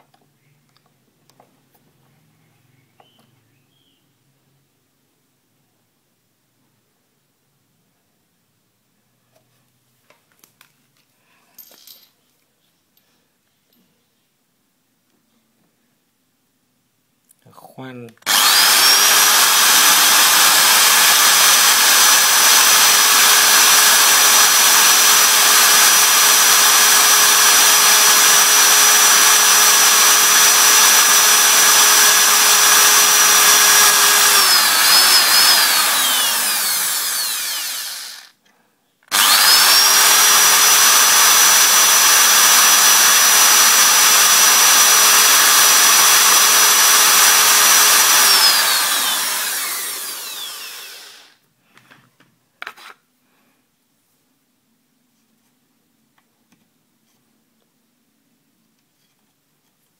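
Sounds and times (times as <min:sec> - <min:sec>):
electric drill boring wood: 0:18.3 - 0:38.4, 0:39.1 - 0:51.4.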